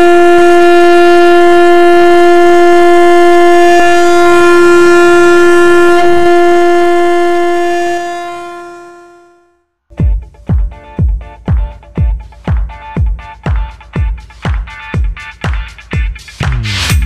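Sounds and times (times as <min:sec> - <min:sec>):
train horn: 0:00.0 - 0:09.6.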